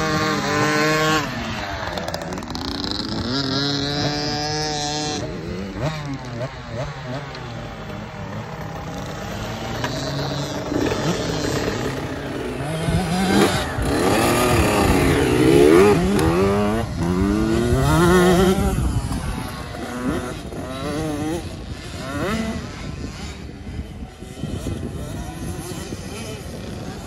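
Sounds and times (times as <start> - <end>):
dirt bike engine revving: 0.0 - 27.0.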